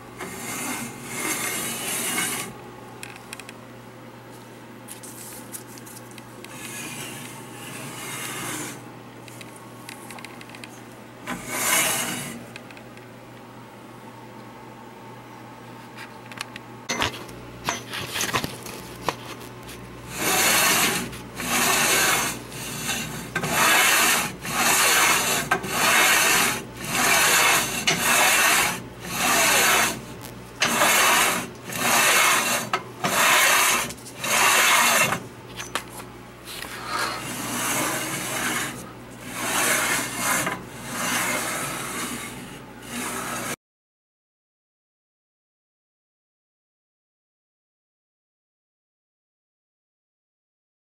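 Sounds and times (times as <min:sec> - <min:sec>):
metal slide rasping on metal: 0:00.2 - 0:02.5, 0:06.5 - 0:08.8, 0:11.3 - 0:12.4, 0:20.1 - 0:35.8, 0:36.5 - 0:43.6.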